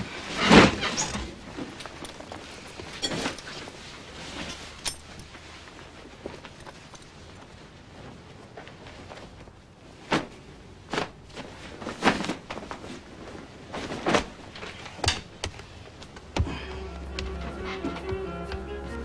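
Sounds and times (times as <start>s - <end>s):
low music: 16.4s - 19.0s.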